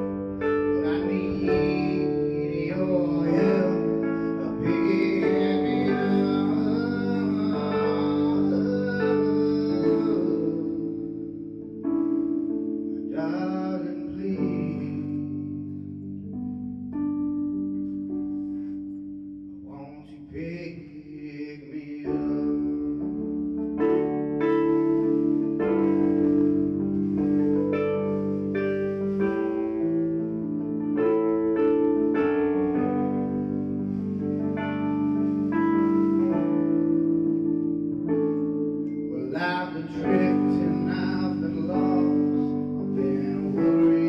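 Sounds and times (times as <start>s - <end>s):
sustained keyboard chords: 0.0s - 44.0s
man singing: 0.7s - 11.2s, 13.1s - 15.6s, 19.7s - 23.2s, 39.1s - 44.0s.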